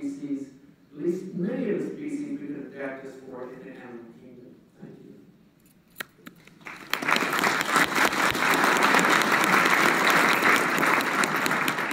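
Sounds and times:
audience applauding: 6.4s - 11.9s.

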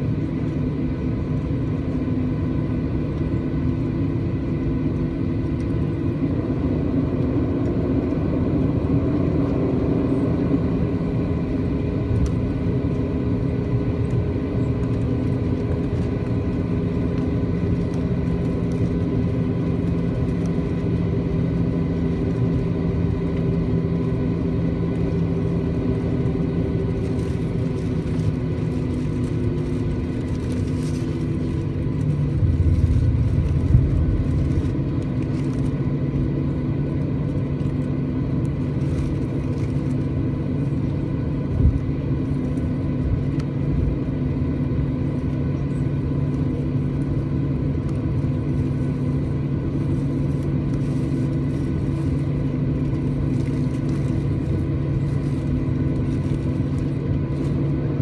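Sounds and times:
jet engines humming and whining: 0.0s - 58.0s
low rumble: 27.1s - 40.0s.

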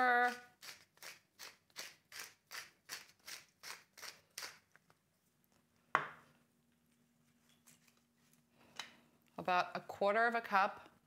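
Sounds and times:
pepper mill grinding: 0.0s - 4.8s.

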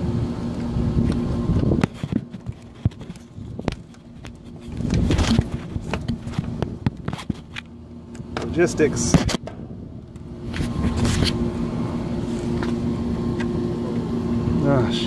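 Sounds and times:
steady machine hum: 0.0s - 15.0s
hands handling wiring: 0.5s - 11.4s.

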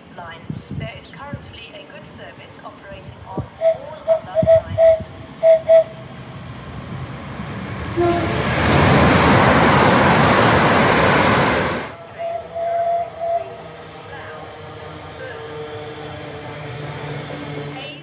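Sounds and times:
train passing at speed: 1.3s - 18.0s
train horn: 3.6s - 6.0s, 7.9s - 9.0s, 12.0s - 18.0s.

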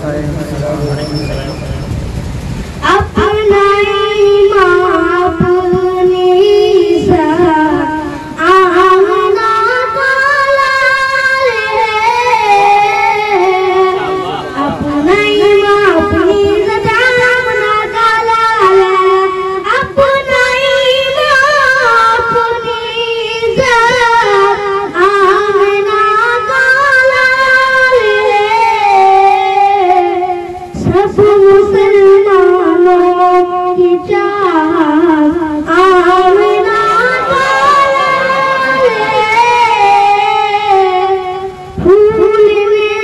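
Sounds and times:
boy singing into microphone: 2.8s - 43.0s.

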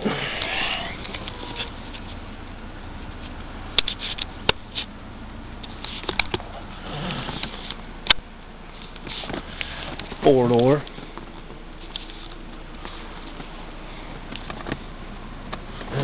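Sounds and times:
steady low hiss: 0.0s - 16.0s.

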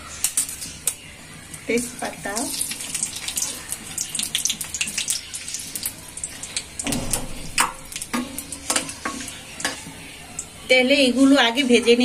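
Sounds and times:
spices sizzling in hot oil: 0.0s - 11.5s.

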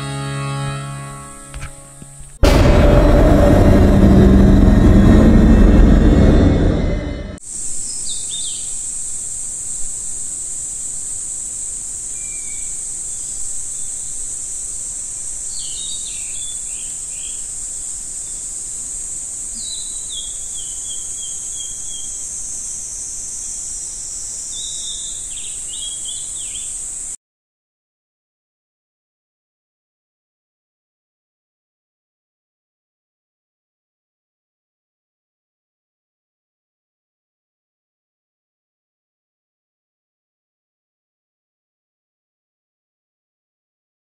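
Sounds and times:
insects droning: 7.4s - 27.2s.

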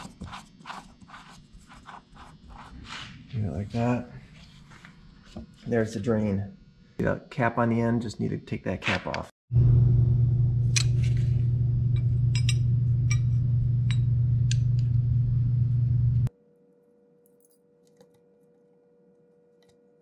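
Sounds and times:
steady low hum: 9.5s - 17.6s.

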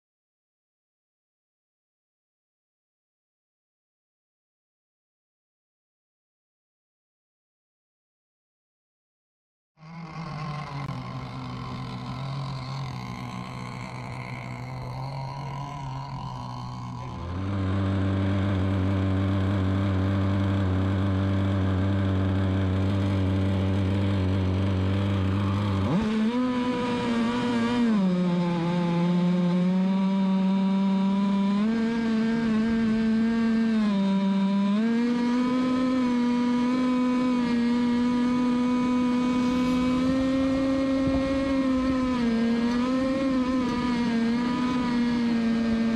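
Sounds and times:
powerboat engines revving: 9.8s - 27.3s.

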